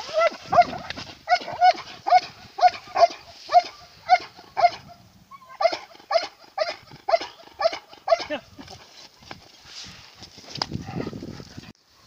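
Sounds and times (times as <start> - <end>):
dog barking: 0.1 - 8.4.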